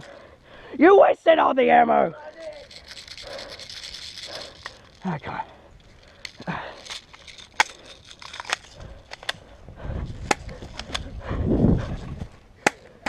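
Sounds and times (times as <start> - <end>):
airsoft pistol clicks and snaps: 7.0 - 9.5.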